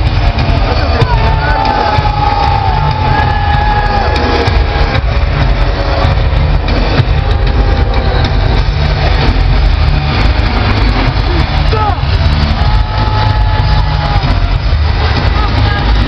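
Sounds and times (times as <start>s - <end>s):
arena crowd cheering: 0.0s - 16.0s
long drawn-out yells: 0.5s - 5.0s, 11.4s - 16.0s.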